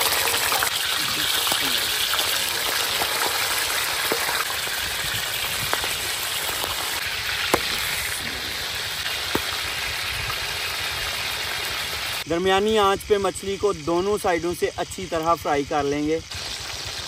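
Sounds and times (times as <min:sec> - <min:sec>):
oil popping and spitting: 0:00.0 - 0:11.7
fish sizzling in oil: 0:00.0 - 0:17.0.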